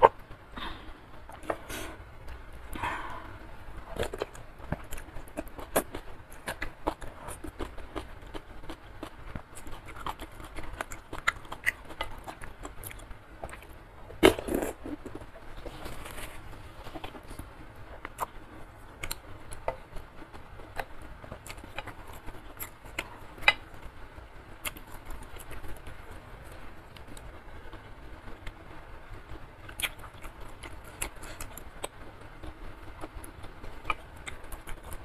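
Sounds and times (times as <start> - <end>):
wet chewing with mouth clicks: 3.9 - 17.4, 19.0 - 23.7, 29.6 - 35.0.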